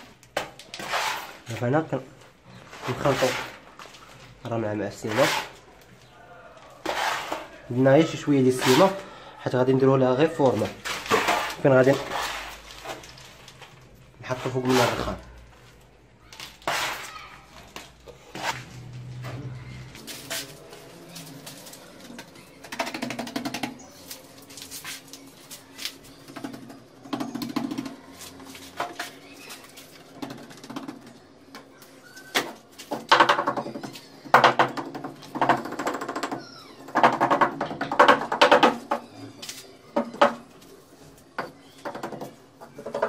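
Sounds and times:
float scraping mortar: 0:00.4 - 0:03.8, 0:04.5 - 0:05.8, 0:06.8 - 0:09.2, 0:10.0 - 0:13.5, 0:14.2 - 0:15.4, 0:16.5 - 0:19.0.

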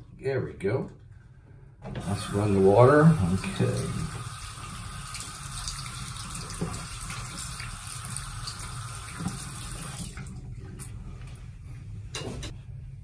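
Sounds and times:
water running from sink faucet: 0:02.0 - 0:10.4.

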